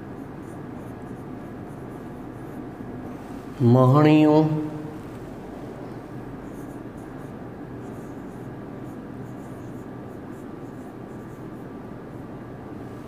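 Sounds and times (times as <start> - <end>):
marker scratching on whiteboard: 0.0 - 2.8, 6.4 - 12.2
steady background noise: 0.0 - 13.0.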